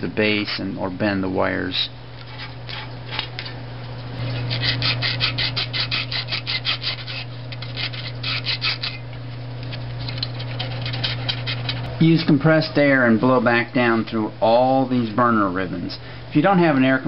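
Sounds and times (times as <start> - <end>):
steady low hum: 0.0 - 17.0
sandpaper rasping on metal rods: 4.2 - 9.0, 10.0 - 11.9.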